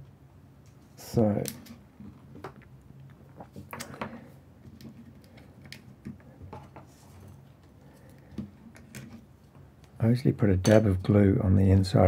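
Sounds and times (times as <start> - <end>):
hands handling cord and objects: 0.6 - 10.0.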